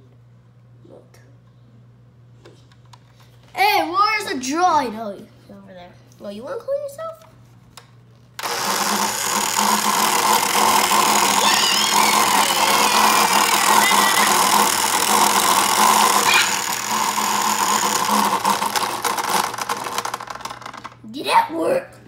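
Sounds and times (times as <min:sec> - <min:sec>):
electronic whirring from toy speaker: 0:08.4 - 0:21.0.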